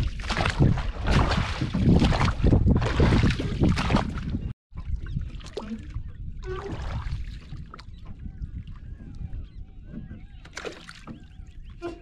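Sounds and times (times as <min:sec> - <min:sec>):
water around a boat: 0:00.0 - 0:12.0
wind: 0:00.0 - 0:12.0
birds calling: 0:07.8 - 0:12.0.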